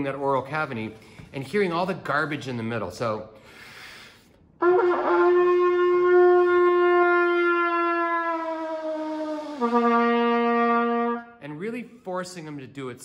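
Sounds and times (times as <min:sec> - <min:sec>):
breath intake: 0:03.4 - 0:04.4
trumpet slurred note: 0:04.6 - 0:11.4.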